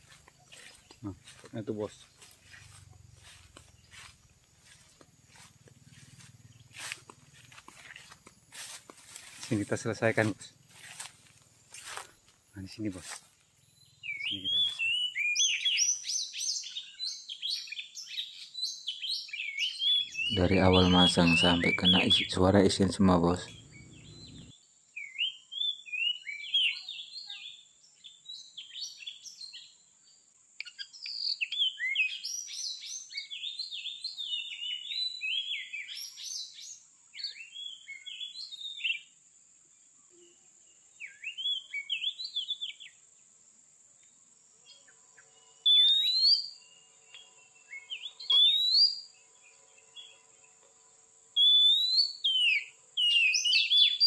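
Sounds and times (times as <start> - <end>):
bird singing whistled phrases: 14.0 - 17.9, 41.0 - 42.8, 45.7 - 46.6, 47.7 - 49.1, 51.4 - 54.0.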